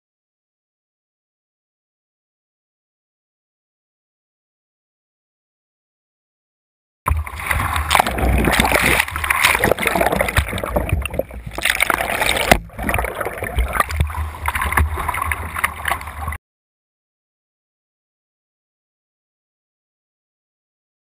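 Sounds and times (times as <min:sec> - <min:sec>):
low rumble: 0:07.1 - 0:16.4
water splashing and rushing: 0:07.1 - 0:16.4.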